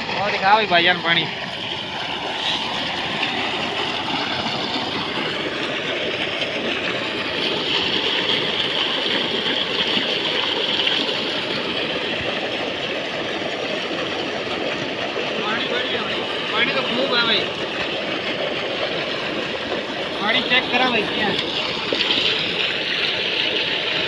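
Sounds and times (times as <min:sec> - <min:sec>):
water gushing into tank: 0:00.0 - 0:24.0.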